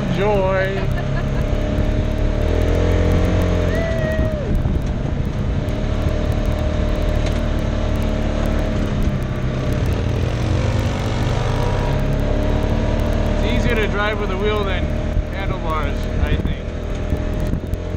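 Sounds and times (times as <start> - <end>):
utility vehicle engine running: 0.0 - 17.9.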